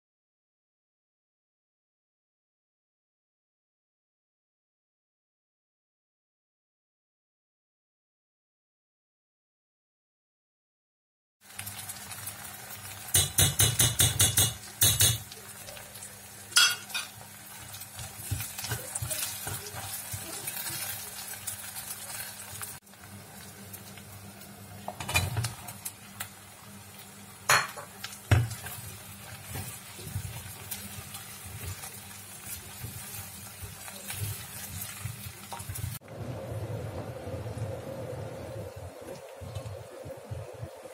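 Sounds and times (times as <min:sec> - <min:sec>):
vegetables sizzling in a pot: 0:11.4 - 0:40.9
spoon clinking against pot: 0:13.1 - 0:15.2, 0:16.6 - 0:17.2.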